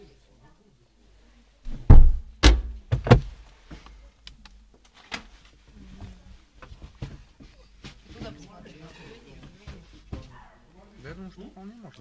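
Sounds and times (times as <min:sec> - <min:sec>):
loud thumps: 0:01.7 - 0:03.4.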